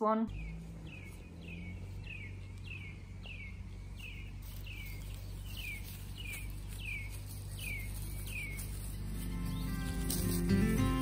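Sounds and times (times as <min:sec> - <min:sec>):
low steady background rumble: 0:00.0 - 0:11.0.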